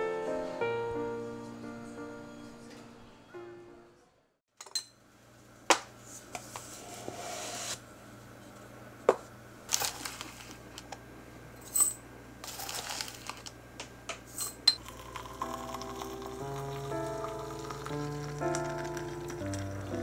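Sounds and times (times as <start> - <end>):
wooden spoon scooping tea leaves: 9.7 - 10.6, 12.4 - 13.5
plastic rustling: 9.7 - 10.9, 12.4 - 13.6.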